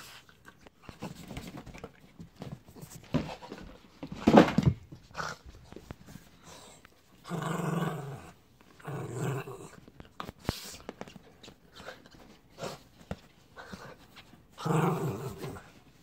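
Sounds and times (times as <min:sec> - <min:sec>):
dog growling: 0:07.2 - 0:09.8, 0:14.6 - 0:15.7.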